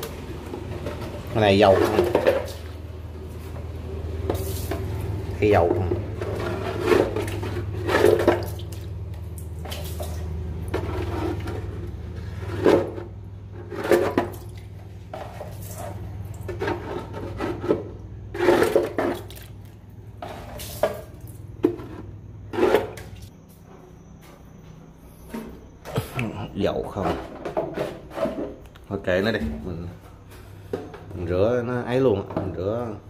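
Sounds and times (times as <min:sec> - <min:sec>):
scouring pad scrubbing wet floor: 0:00.0 - 0:23.3
water sloshing: 0:00.0 - 0:23.4
steady low hum: 0:00.0 - 0:33.0.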